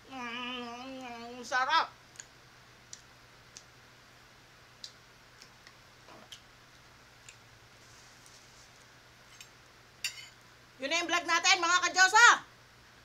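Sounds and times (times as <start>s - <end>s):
mouth clicks and lip smacks chewing: 2.1s - 3.7s, 4.8s - 7.4s.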